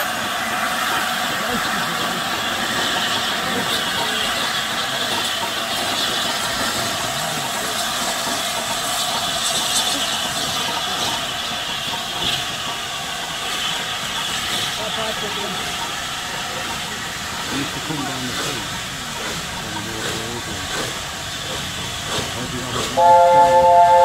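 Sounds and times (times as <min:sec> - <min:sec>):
steam locomotive hissing steam: 0:00.0 - 0:24.0.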